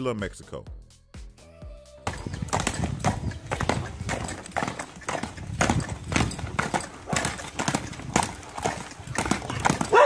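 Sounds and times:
horse hooves striking ground: 2.0s - 10.0s.

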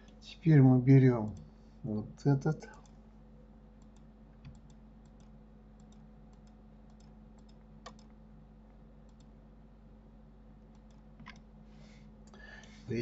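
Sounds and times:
low steady hum: 0.0s - 13.0s
computer mouse clicks: 3.8s - 8.2s, 9.1s - 9.3s, 10.6s - 11.4s.

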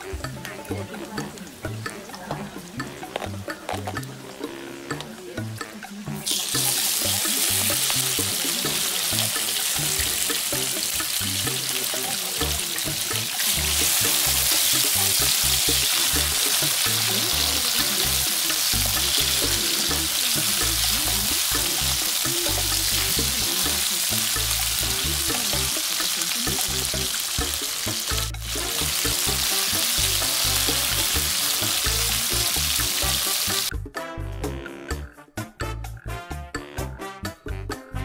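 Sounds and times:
meat and garlic sizzling in oil: 6.2s - 33.7s.

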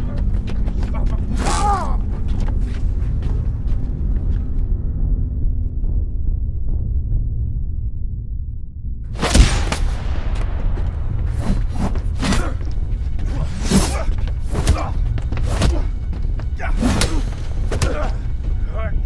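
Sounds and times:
low rumbling music: 0.0s - 19.0s
fight thumps and whooshes: 9.1s - 16.0s.

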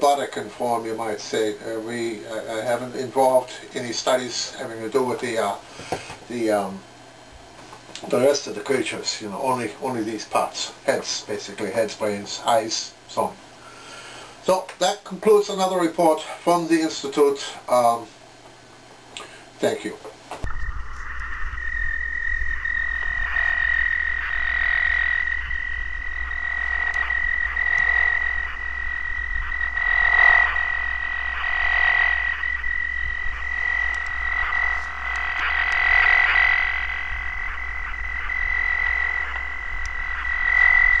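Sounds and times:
low hum: 20.3s - 41.0s
high pulsing warble: 20.4s - 41.0s.

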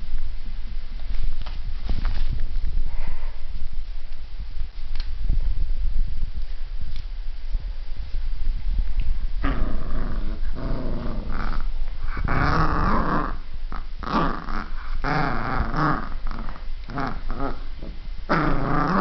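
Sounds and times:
puppy play-growling: 8.9s - 19.0s.

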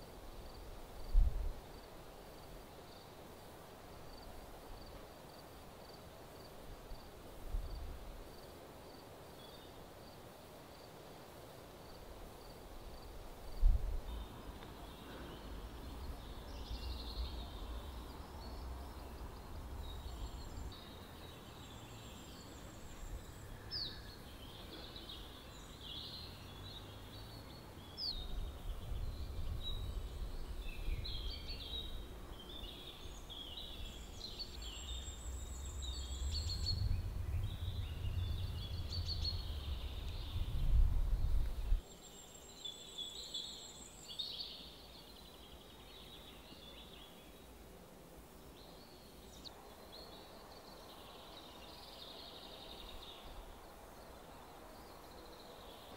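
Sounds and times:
songbirds singing and chirping: 4.0s - 55.9s
low rumble: 35.1s - 41.8s.

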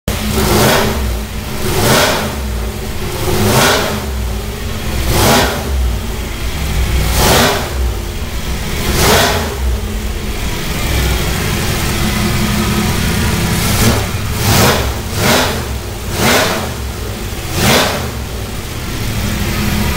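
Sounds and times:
engine revving: 0.1s - 19.9s.

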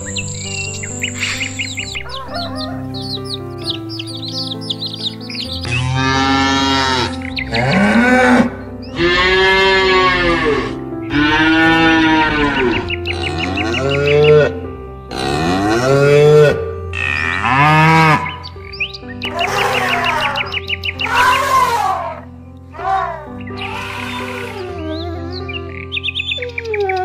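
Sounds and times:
background music sustained notes: 0.0s - 27.0s
cow mooing: 5.6s - 18.4s, 19.3s - 22.2s, 22.8s - 25.3s.

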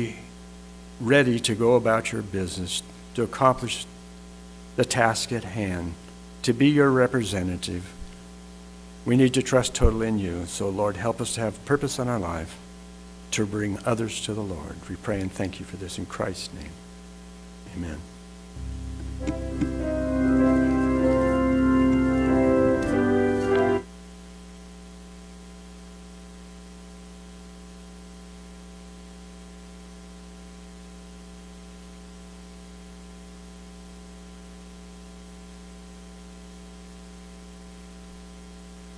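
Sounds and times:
mains hum: 0.0s - 38.9s
organ playing held chords: 18.6s - 23.9s.

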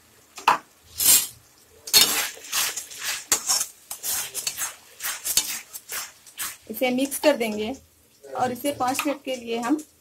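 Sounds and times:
metal spatula scraping a pan: 0.9s - 7.8s.

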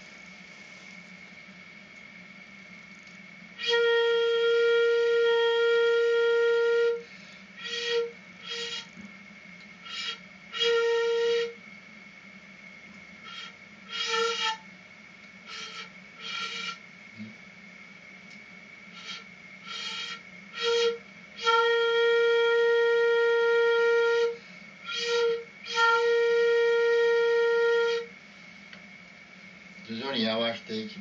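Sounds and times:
bamboo flute notes: 3.6s - 9.0s, 9.8s - 11.6s, 13.2s - 14.7s, 15.4s - 17.3s, 18.9s - 28.2s.

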